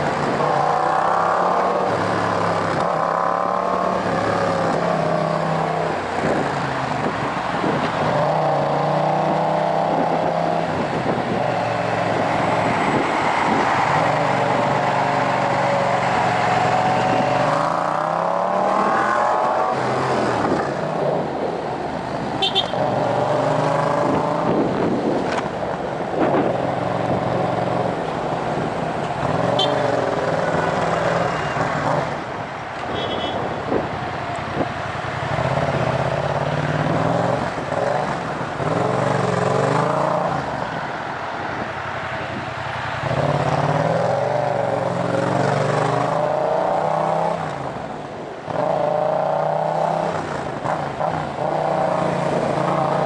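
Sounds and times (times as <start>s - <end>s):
loud motorcycle engine revving: 0.0s - 6.4s, 7.7s - 21.2s, 22.5s - 25.0s, 48.5s - 53.0s.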